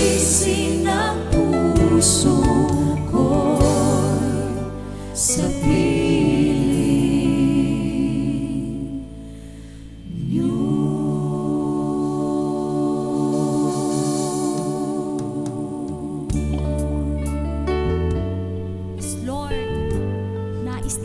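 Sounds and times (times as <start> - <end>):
gospel choir singing: 0.0 - 18.1.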